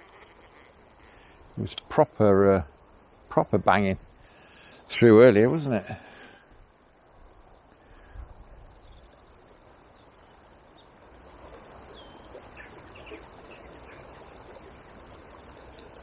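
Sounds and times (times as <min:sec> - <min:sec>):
flowing water: 0:00.0 - 0:16.0
bird chirps: 0:11.9 - 0:14.1.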